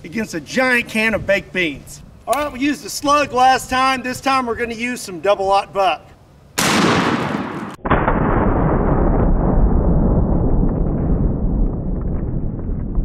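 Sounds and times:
shotgun blast: 6.6 - 11.7
slowed deep rumble: 7.8 - 13.0.

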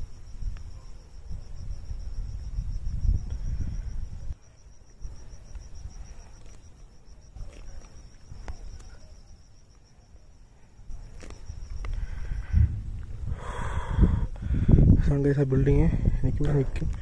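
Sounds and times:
crickets chirring: 0.0 - 17.0
low rumbling on microphone: 11.6 - 17.0.

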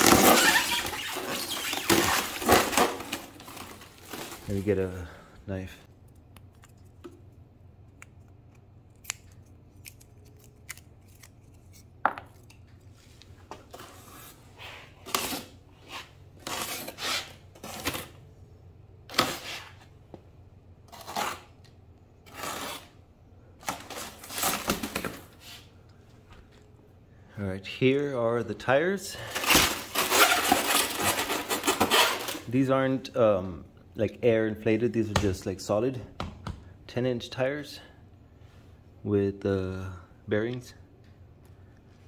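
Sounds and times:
knife cutting cardboard: 22.2 - 23.0.

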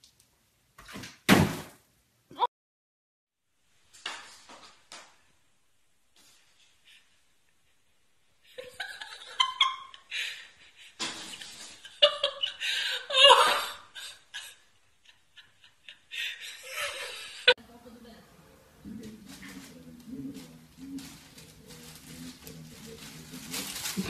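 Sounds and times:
person laughing: 8.5 - 17.6.

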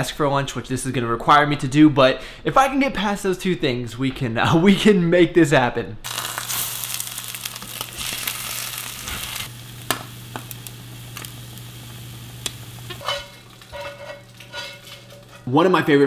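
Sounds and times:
food sizzling in a pan: 6.0 - 15.5
steady low hum: 9.5 - 15.4.

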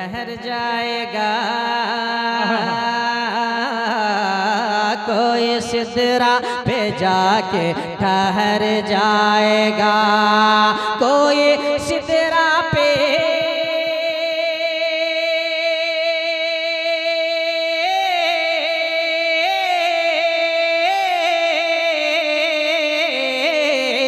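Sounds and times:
man singing unaccompanied: 0.0 - 24.0.

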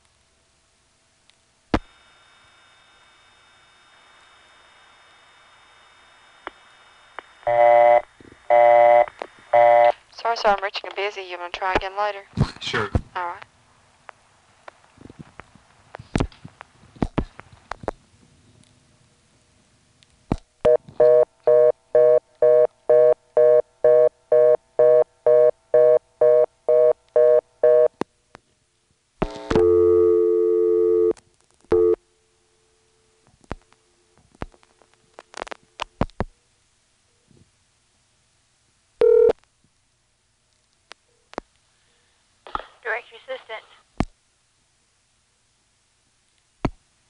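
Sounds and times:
telephone busy tone: 2.0 - 10.0, 20.7 - 27.9, 29.6 - 31.1, 31.7 - 32.0, 39.0 - 39.4
telephone dial tone: 7.4 - 10.0, 29.6 - 31.1, 39.0 - 39.4.

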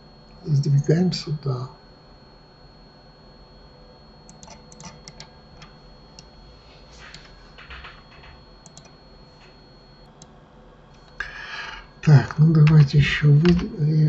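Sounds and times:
faint high whine: 0.0 - 14.0
keyboard and mouse clicks: 4.3 - 6.3, 7.8 - 8.9.

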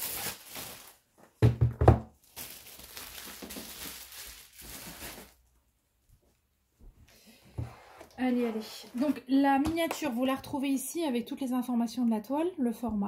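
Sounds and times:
crinkly rustling: 0.0 - 1.2, 2.2 - 5.6.

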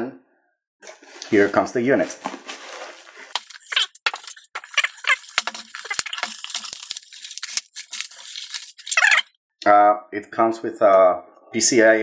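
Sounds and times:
bubble wrap rustling and crackling: 0.9 - 9.3.

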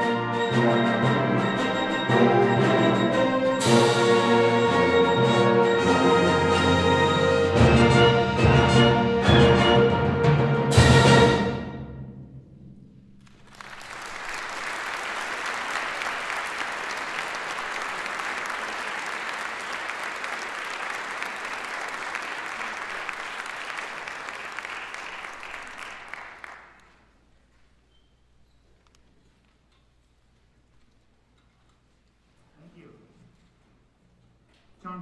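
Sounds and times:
audience applauding: 13.2 - 27.1.

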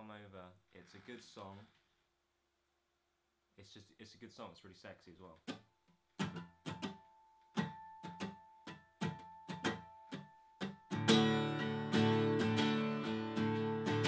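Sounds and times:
acoustic guitar strummed with a pick: 5.5 - 14.0.

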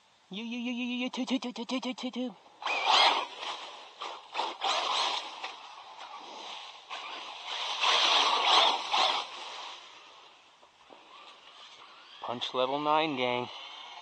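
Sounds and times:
toy truck tyres spraying gravel: 2.7 - 10.3.

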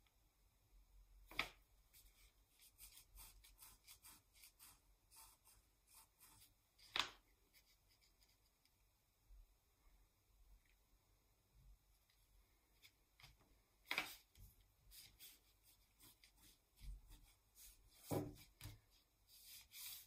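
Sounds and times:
pen scratching on paper: 2.0 - 6.5, 14.9 - 20.0.

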